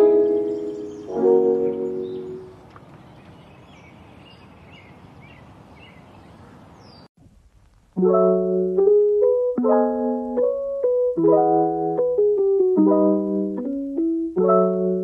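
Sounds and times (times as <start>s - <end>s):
piano music: 0.0s - 2.6s, 8.0s - 15.0s
soft steady hiss: 0.0s - 15.0s.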